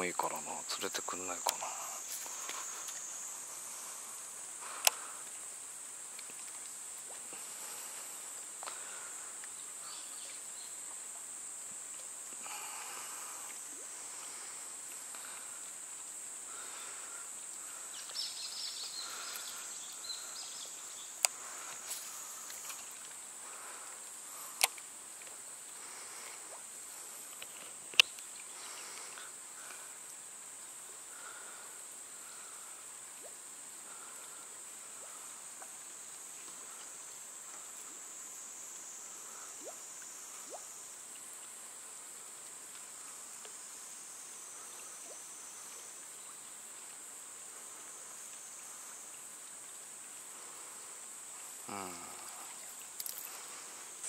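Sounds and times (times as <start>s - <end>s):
high-pitched insect drone: 0.0s - 5.4s.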